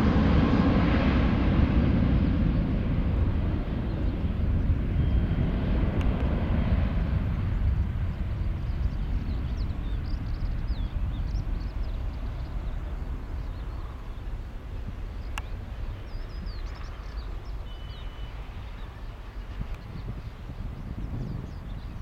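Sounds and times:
jet engines roaring: 0:00.0 - 0:22.0
faint bird chirps: 0:15.2 - 0:22.0.

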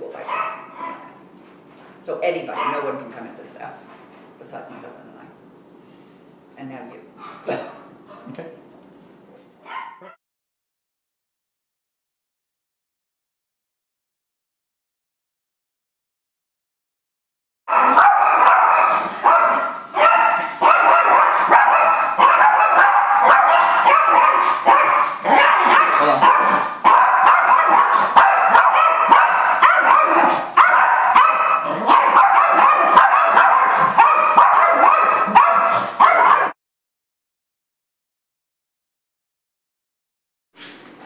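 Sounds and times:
small dogs barking rapidly: 0:00.2 - 0:01.2, 0:02.5 - 0:03.0, 0:09.6 - 0:10.2, 0:17.7 - 0:36.6.

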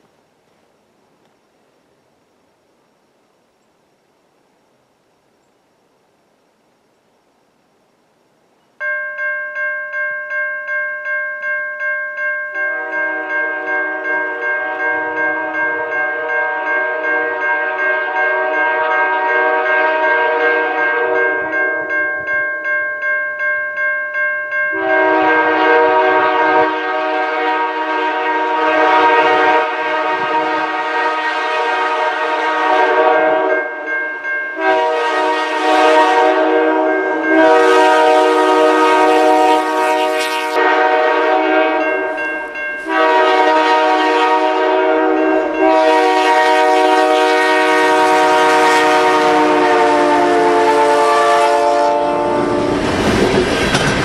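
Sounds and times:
locomotive air horn blasts: 0:12.7 - 0:21.5, 0:24.7 - 0:33.7, 0:34.6 - 0:42.1, 0:42.8 - 0:52.8
freight cars rumbling and clattering: 0:52.7 - 0:54.0.

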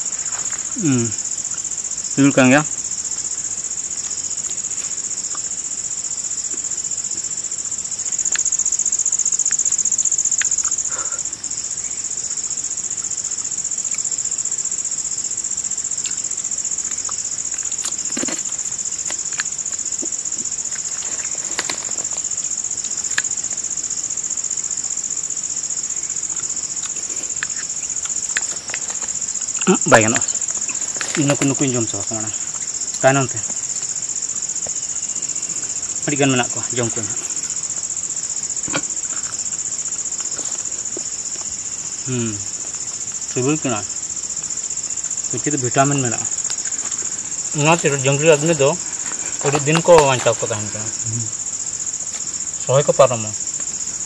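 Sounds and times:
insect chorus trilling drone: 0:00.0 - 0:54.0
faint clicks and rustles: 0:16.9 - 0:23.4, 0:26.2 - 0:34.0.

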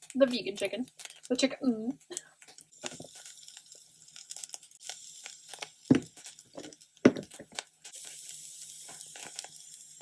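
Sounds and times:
sprinkling hiss: 0:02.7 - 0:10.0
spice shaker knocks: 0:05.9 - 0:07.6.

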